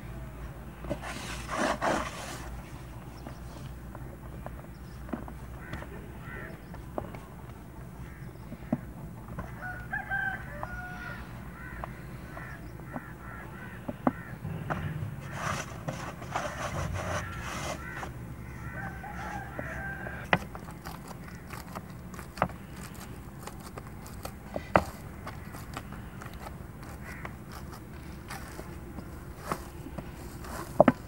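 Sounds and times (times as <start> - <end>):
rooster crowing: 9.5 - 11.4, 17.2 - 20.4
sharp knocks: 14.0 - 17.3.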